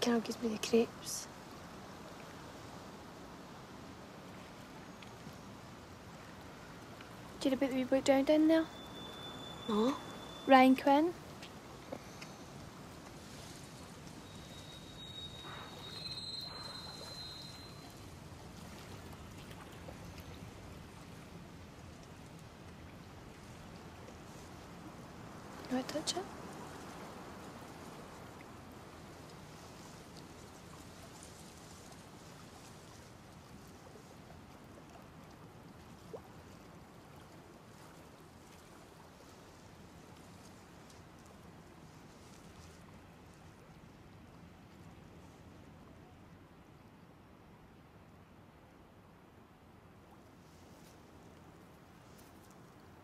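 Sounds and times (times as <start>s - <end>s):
low even hiss: 0.0s - 53.0s
thin high tone: 8.5s - 11.1s, 14.2s - 18.1s
brief rising chirp: 14.3s - 18.0s.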